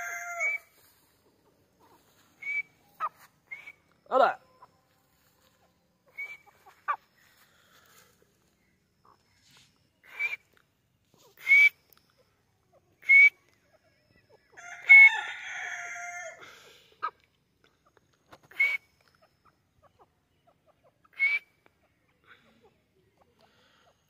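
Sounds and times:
francolin calling: 1.7 - 14.7, 17.8 - 24.0.

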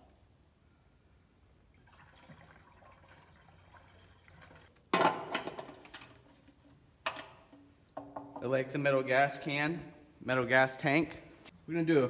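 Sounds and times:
fuel trickling into metal tank: 1.7 - 4.8.

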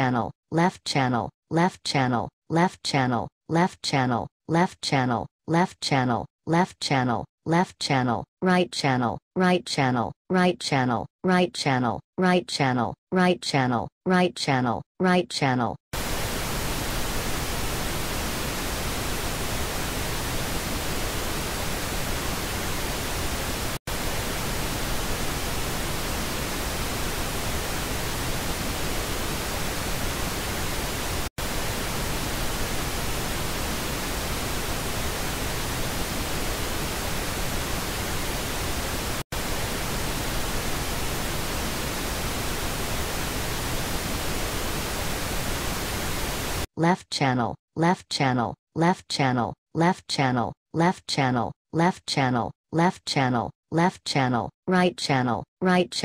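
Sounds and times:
pink noise hiss: 16.0 - 46.7.

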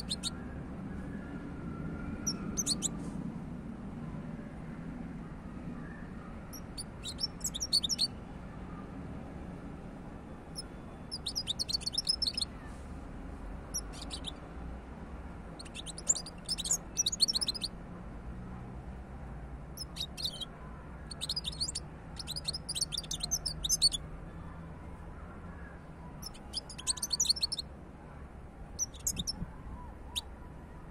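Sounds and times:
goldfinch twittering: 2.3 - 2.9, 6.6 - 8.1, 10.6 - 12.4, 13.7 - 14.3, 15.6 - 17.7, 19.8 - 20.4, 21.1 - 24.0, 26.2 - 27.6, 28.8 - 29.4.

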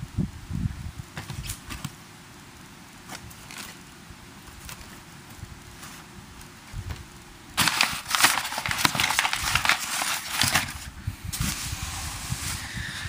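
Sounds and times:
cardboard and plastic rustling: 1.1 - 2.0, 3.0 - 11.8.

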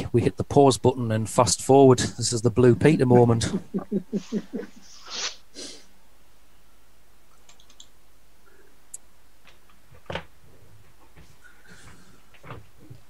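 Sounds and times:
low hum and hiss of call audio: 0.0 - 13.0
faint clicks: 7.3 - 8.0.

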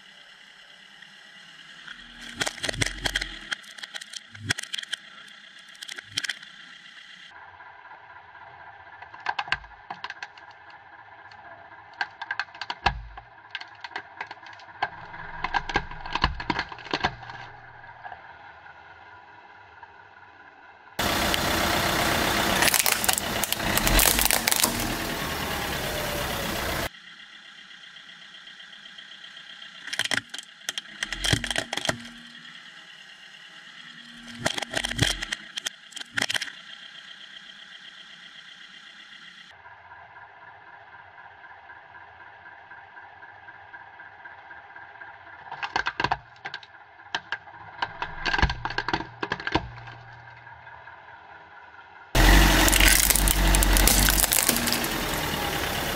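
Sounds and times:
car engine running: 0.0 - 55.9
plastic toys cracking under tyre: 2.0 - 6.5, 9.0 - 17.7, 22.5 - 26.2, 29.8 - 32.2, 34.1 - 36.6, 45.5 - 50.4, 52.2 - 55.6.

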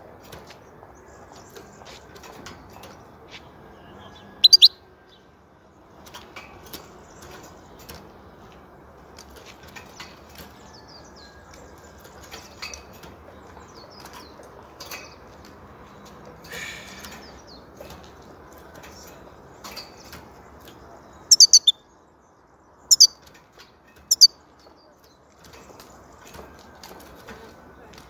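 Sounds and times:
bird chirping: 2.8 - 5.3, 9.7 - 26.5
sharp high bird calls: 4.1 - 4.9, 21.2 - 21.9, 22.8 - 23.2, 24.0 - 24.4.

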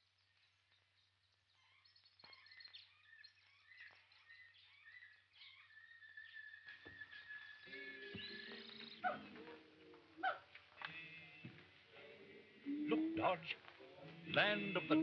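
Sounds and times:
faint bird chirps and whistles: 0.0 - 9.4, 12.6 - 13.5.

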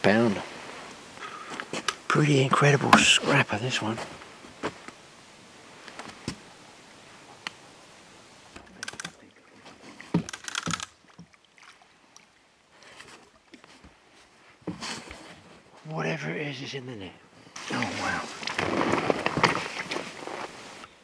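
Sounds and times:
fishing rod and reel clicks: 8.6 - 9.2, 10.2 - 11.0.

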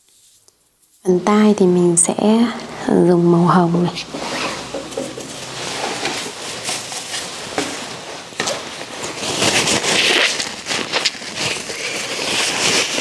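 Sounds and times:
rustling and knocks of rummaging: 4.1 - 9.6.

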